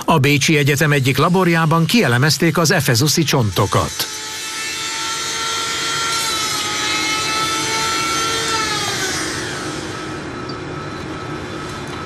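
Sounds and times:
rotary tool grinding bone: 0.8s - 10.3s.

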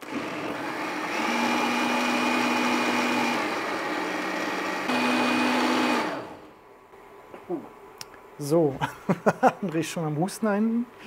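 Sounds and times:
blender running at high speed: 0.0s - 6.5s.

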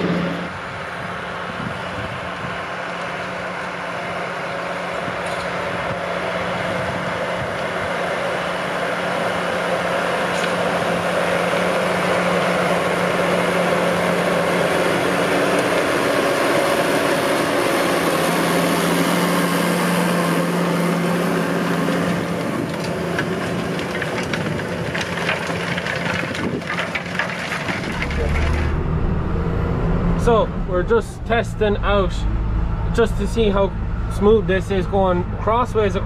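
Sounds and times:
tractor engine running under load: 0.0s - 36.0s
rattling clatter: 22.4s - 28.8s.

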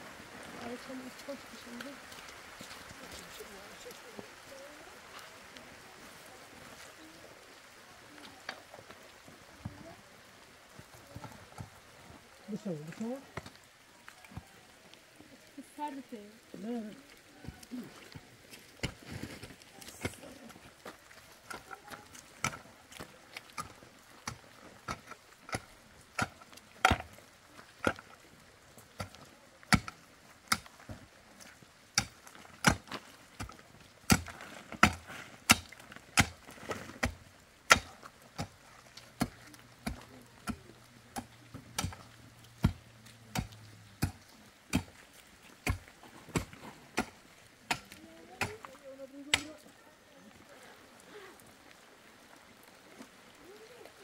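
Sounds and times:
pickaxe striking stony earth: 34.1s - 36.4s, 37.0s - 38.6s, 42.6s - 44.9s.

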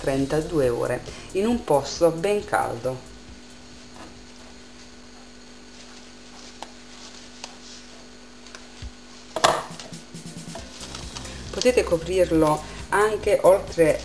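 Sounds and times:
low steady hum: 0.0s - 14.0s
cling film crinkling rustle: 3.8s - 9.4s, 10.6s - 11.8s.

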